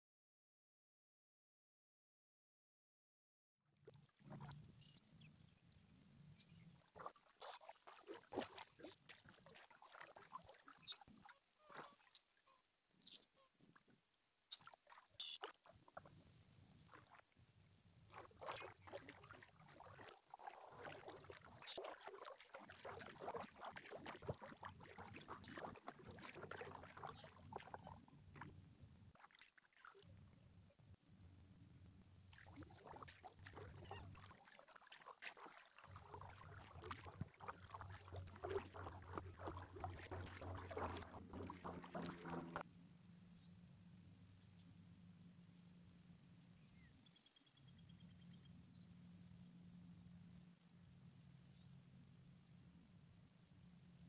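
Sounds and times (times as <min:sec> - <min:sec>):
small water splashes and drips: 0:03.8 - 0:17.3, 0:18.0 - 0:30.5, 0:32.1 - 0:42.6
paddle dipping into water: 0:06.9 - 0:12.2, 0:18.1 - 0:30.3, 0:32.3 - 0:42.6.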